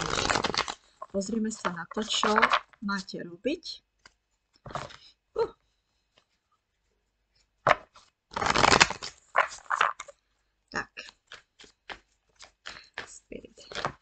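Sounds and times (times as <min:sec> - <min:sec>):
cards being shuffled: 0:00.0 - 0:02.8, 0:04.0 - 0:05.0, 0:07.6 - 0:10.2, 0:11.0 - 0:14.0.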